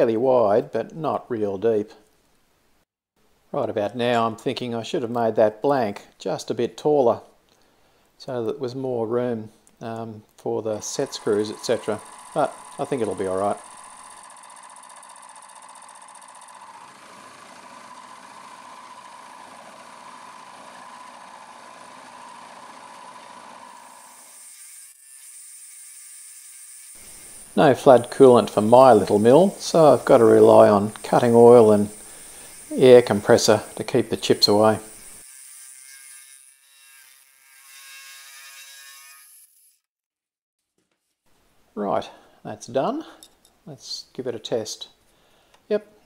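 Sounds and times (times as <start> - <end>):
milling machine whine: 10.8 - 24.3
compressed air hiss: 29.7 - 35.2.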